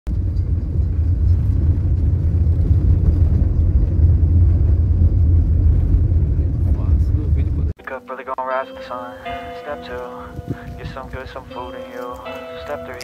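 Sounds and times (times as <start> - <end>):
road and engine rumble: 0.1 - 7.8.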